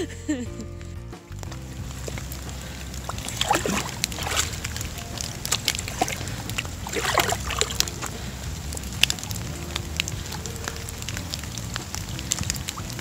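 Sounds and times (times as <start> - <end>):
dog splashing in water: 1.6 - 13.0.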